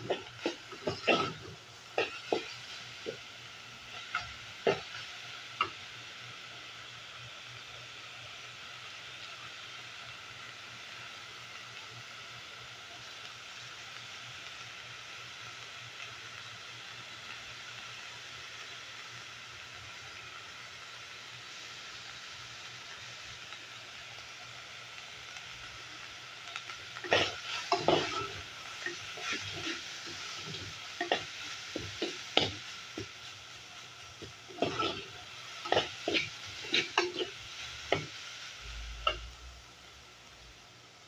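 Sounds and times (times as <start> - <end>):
meat sizzling in a pot: 0.0 - 41.0
spoon scraping a metal pot: 34.6 - 38.1.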